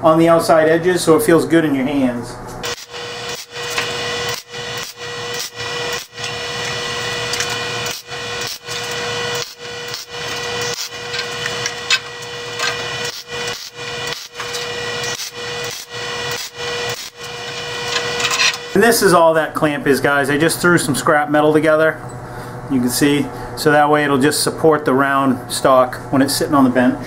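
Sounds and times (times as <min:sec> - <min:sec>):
welding arc crackling: 0:02.6 - 0:19.0.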